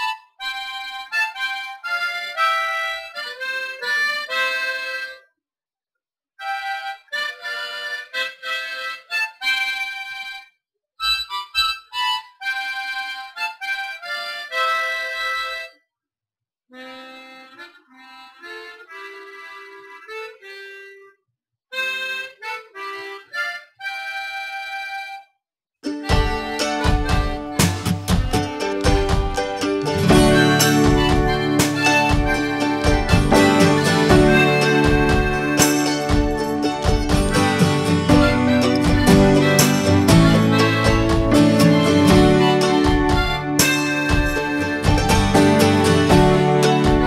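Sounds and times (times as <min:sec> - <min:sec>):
background music melody: 0:16.8 - 0:47.0.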